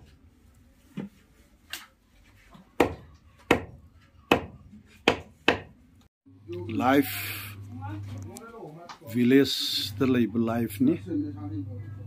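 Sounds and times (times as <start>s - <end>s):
knife chopping meat on wood: 2.8s - 5.7s.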